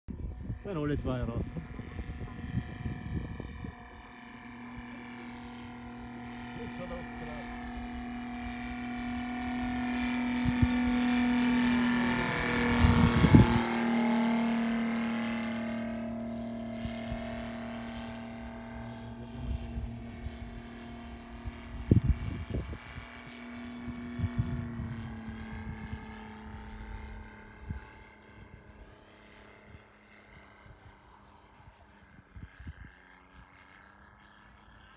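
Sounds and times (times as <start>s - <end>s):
model airplane motor droning: 0.1s - 34.9s
wind thumps on microphone: 12.4s - 13.8s, 19.3s - 23.2s.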